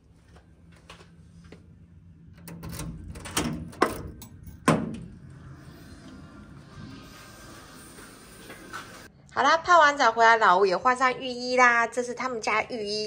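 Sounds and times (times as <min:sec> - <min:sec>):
key turning in lock: 0:02.4 - 0:04.7.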